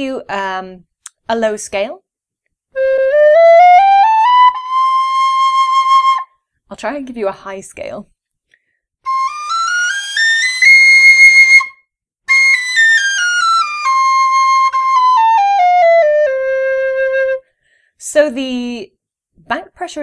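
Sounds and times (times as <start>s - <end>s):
tin whistle playing a scale: 2.8s - 6.3s, 9.1s - 17.4s.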